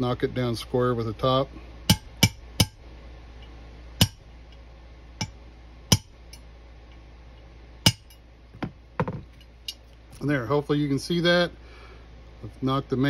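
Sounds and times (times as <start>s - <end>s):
hammer tapping metal punch: 1.9s - 2.8s, 4.0s - 4.2s, 5.2s - 6.4s, 7.9s - 9.8s.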